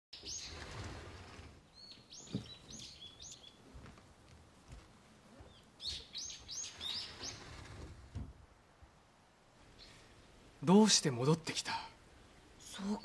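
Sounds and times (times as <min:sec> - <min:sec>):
small birds chirping: 0:00.2 - 0:03.9, 0:05.2 - 0:07.9, 0:09.6 - 0:13.0.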